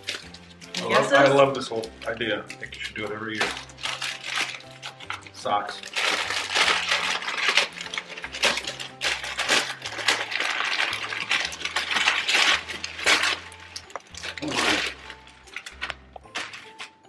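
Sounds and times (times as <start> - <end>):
wrapping paper crinkling and tearing: 0.0 - 17.0.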